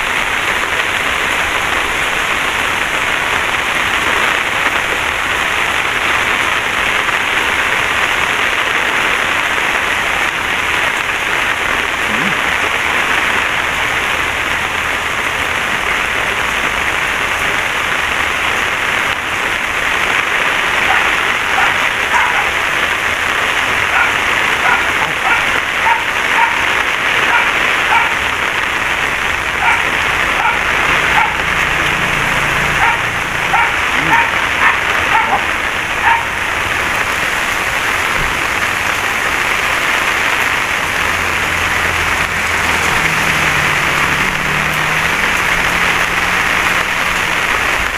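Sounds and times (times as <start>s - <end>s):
rain hiss: 0.0s - 47.9s
dog barking: 20.8s - 22.6s, 23.8s - 28.2s, 29.6s - 31.5s, 32.7s - 36.4s.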